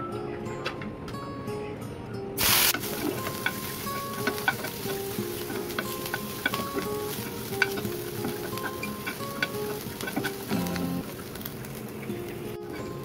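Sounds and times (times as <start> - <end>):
onion sizzling in hot oil: 2.4 - 13.0
utensil scraping a pan: 2.8 - 11.0.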